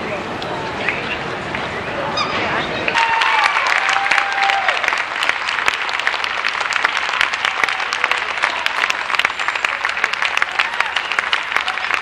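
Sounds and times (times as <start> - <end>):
crowd applauding: 2.9 - 12.0.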